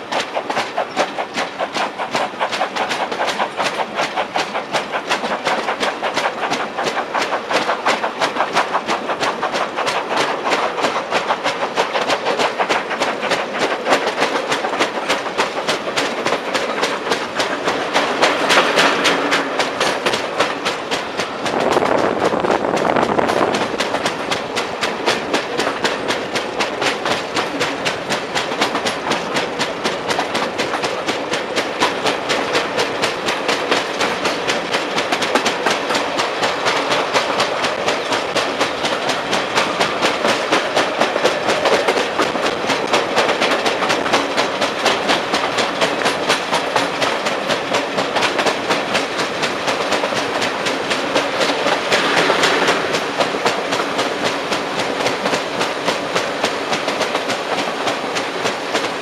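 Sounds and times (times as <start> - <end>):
wheel and rail noise: 0.0 - 59.0
loud rush: 51.5 - 54.4.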